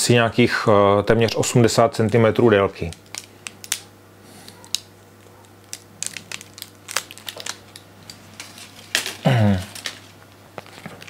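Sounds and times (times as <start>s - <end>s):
sinews rustling and crackling: 1.2s - 11.0s
person grunting: 9.2s - 9.8s.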